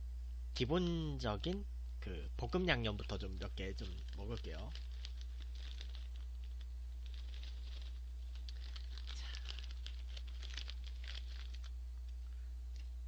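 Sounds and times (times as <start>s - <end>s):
steady low hum: 0.0s - 13.0s
crackers crackling: 2.8s - 12.9s
plastic snack bag crinkling: 2.9s - 11.8s.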